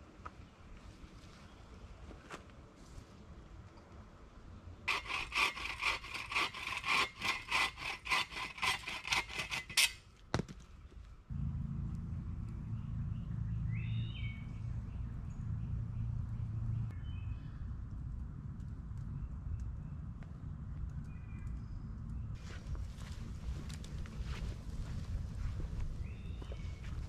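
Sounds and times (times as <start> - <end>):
hand saw cutting wood: 4.9 - 10.0
steady low rumble: 11.3 - 27.0.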